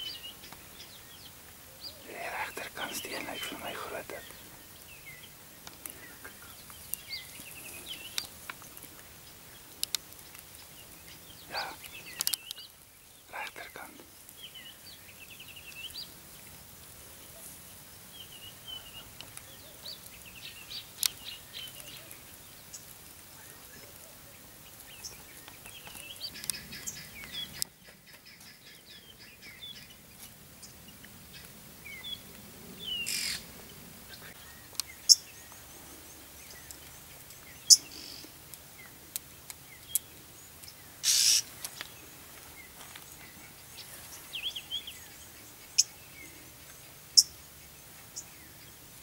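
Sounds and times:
birds chirping and trilling: 0.0s - 16.1s, 24.6s - 39.0s, 39.6s - 48.8s.

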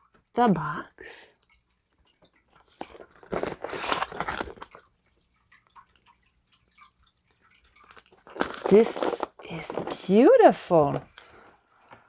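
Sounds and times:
cardboard box rustling: 2.8s - 4.8s.

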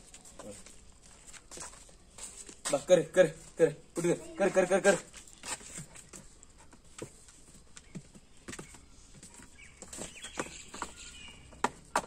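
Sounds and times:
faint chirps: 7.7s - 11.6s.

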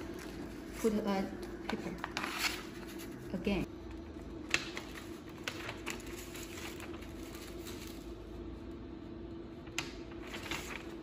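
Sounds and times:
paper rustling: 0.0s - 3.4s, 4.4s - 8.3s, 9.6s - 11.0s
steady low hum: 0.0s - 11.0s.

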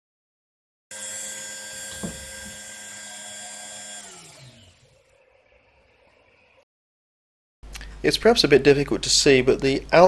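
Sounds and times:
rotary tool whining: 0.9s - 6.6s
knock: 2.0s - 2.6s.

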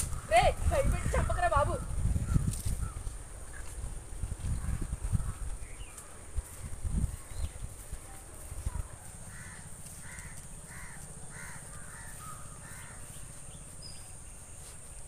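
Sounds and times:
steady low rumble: 0.0s - 14.6s
bird calling: 8.6s - 14.9s.

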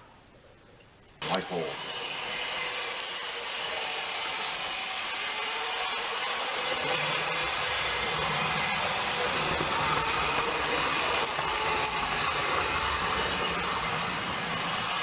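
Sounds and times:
gears grinding: 1.2s - 15.0s
model train motor hum: 1.2s - 15.0s
wheel rumble on track: 6.0s - 15.0s.

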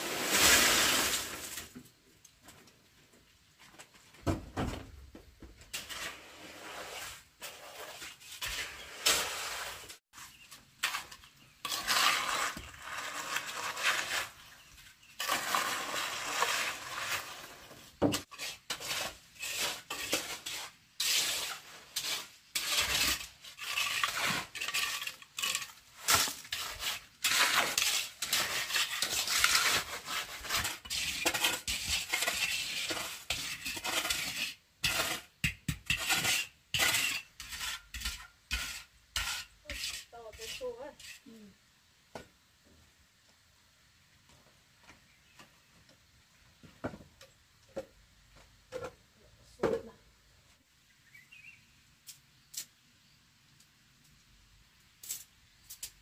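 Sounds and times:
shovel scraping wet concrete: 0.0s - 1.7s, 5.7s - 41.3s.

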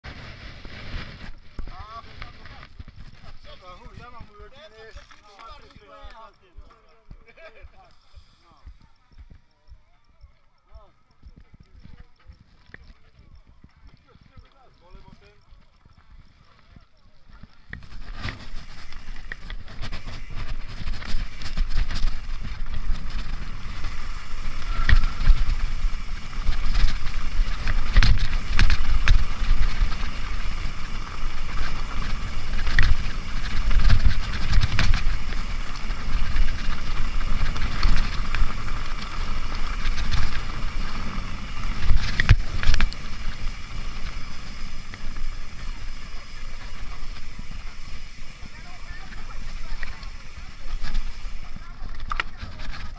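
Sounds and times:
bike tyres rumbling over gravel: 0.0s - 9.5s, 10.8s - 52.9s
bike knocking and rattling: 0.6s - 52.9s.

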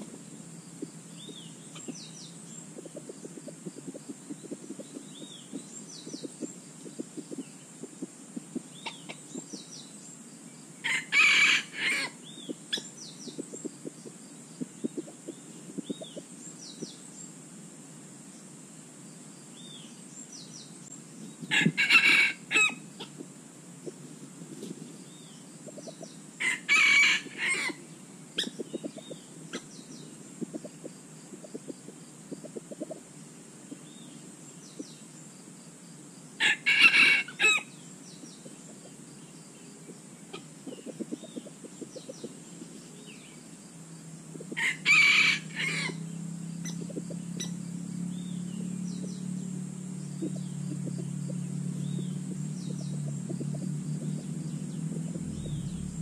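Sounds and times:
rooster crowing: 10.8s - 12.2s, 21.5s - 22.8s, 26.4s - 27.8s, 36.4s - 37.7s, 44.5s - 46.1s
low steady hum: 45.4s - 56.0s.

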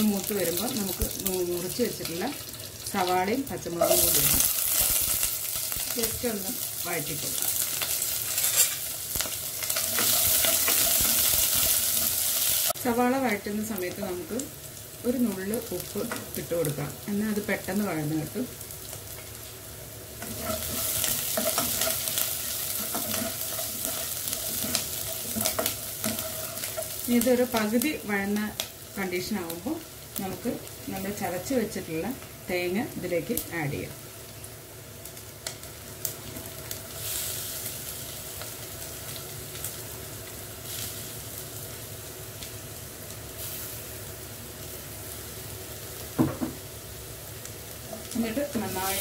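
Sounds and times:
onions frying in hot oil: 0.0s - 49.0s
spatula stirring and scraping: 20.2s - 27.0s.

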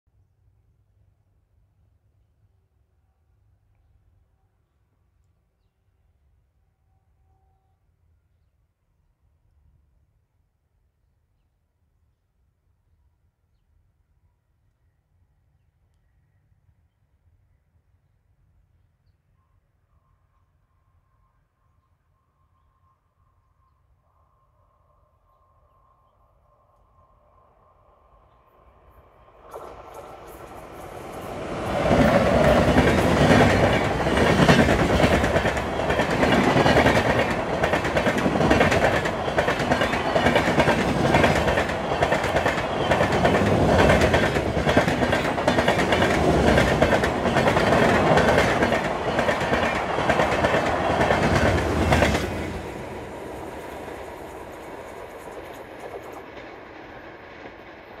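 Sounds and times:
train rumble: 28.9s - 58.0s
wheels clacking over rail joints: 29.5s - 52.8s.

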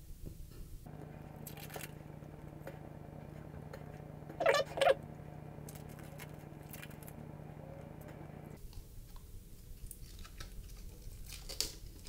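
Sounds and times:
low steady hum: 0.8s - 8.7s
plastic film crinkling and clicking: 9.8s - 12.0s.

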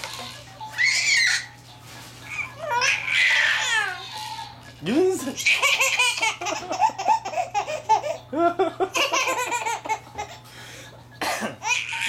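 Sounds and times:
baby laughing: 2.3s - 4.6s, 5.3s - 10.4s, 11.5s - 12.0s.

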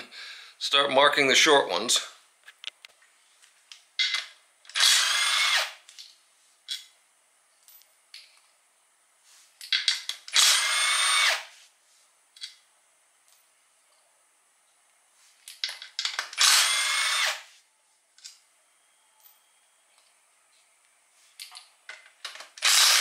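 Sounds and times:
tools and bolts clicking: 4.0s - 4.9s, 5.9s - 6.9s, 9.6s - 10.6s, 15.4s - 16.5s, 21.4s - 23.0s
power driver whining: 4.7s - 5.8s, 10.3s - 11.5s, 16.3s - 17.4s, 22.4s - 23.0s.

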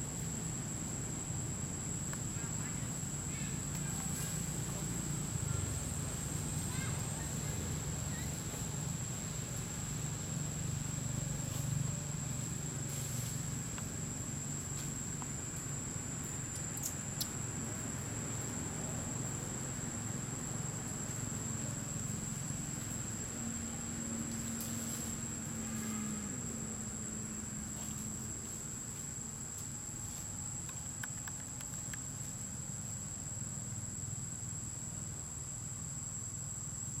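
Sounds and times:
high-pitched insect drone: 0.0s - 37.0s
faint clicks: 30.6s - 32.1s.

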